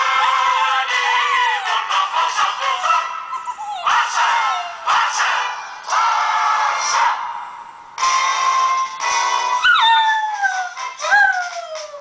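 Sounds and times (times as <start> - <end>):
music: 0.0 - 12.0
puppy howling: 0.2 - 1.9, 2.6 - 5.2, 9.6 - 12.0.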